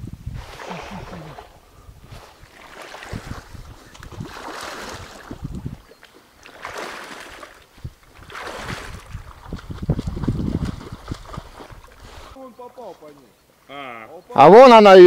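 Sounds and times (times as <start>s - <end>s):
legs wading through water: 0.4s - 12.4s.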